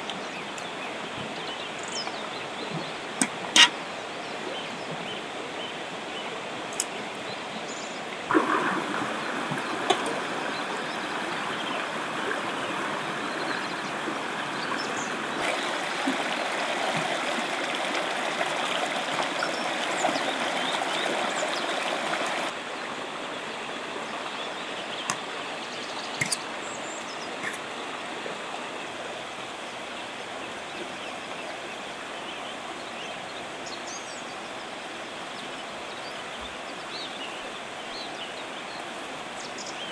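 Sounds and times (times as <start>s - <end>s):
river rushing over rocks: 8.1s - 23.4s.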